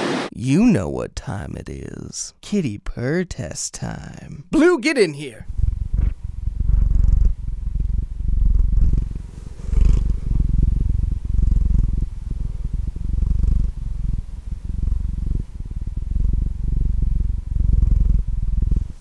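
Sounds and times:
cat purring: 5.4s - 19.0s.

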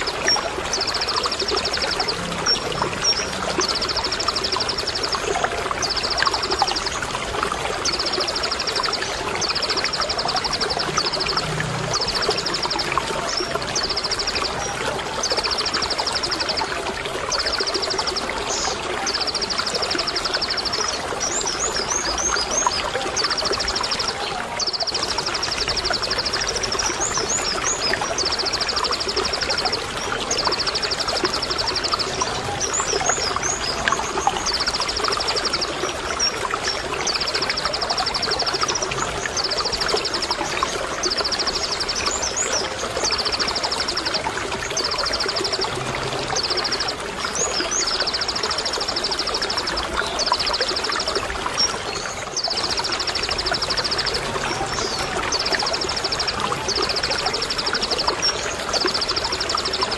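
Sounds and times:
running water: 0.0s - 59.9s.

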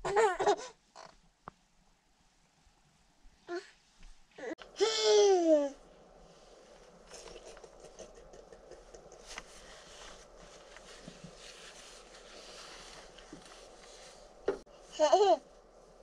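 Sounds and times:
people shifting on seats: 9.2s - 14.7s.

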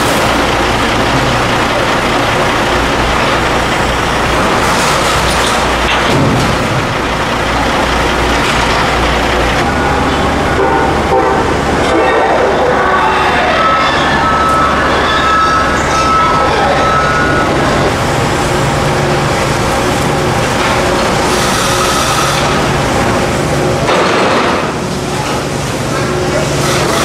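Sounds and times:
train passing: 0.0s - 5.9s, 6.6s - 27.0s
excavator diesel engine running: 0.0s - 27.0s
steady high tones: 9.6s - 19.6s.

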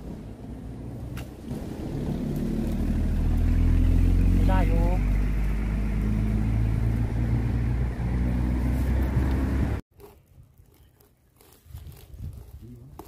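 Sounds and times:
engine humming: 0.0s - 9.8s
faint outdoor sound: 0.0s - 13.0s.

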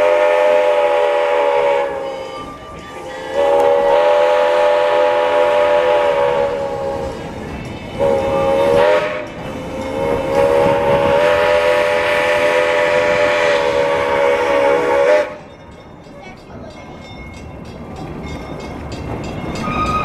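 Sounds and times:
steam locomotive whistle: 0.0s - 7.4s, 8.0s - 15.5s, 19.6s - 20.0s.

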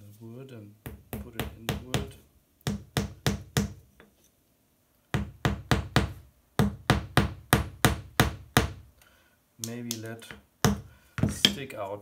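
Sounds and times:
small hammer tapping a nail: 0.9s - 3.8s.

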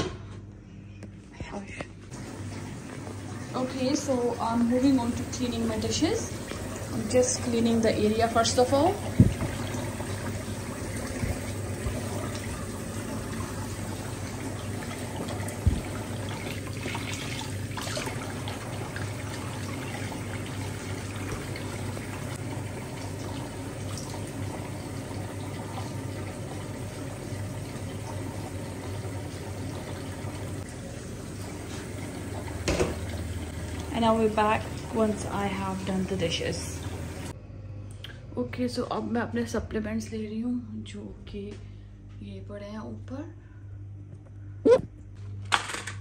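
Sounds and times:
tap running into pan of water: 32.6s - 33.2s.

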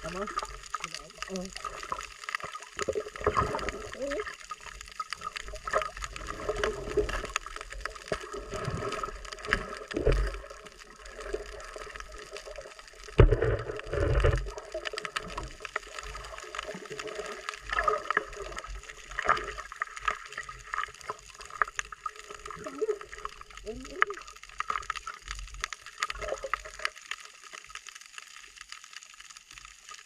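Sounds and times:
water sloshing and gurgling: 0.0s - 28.7s.

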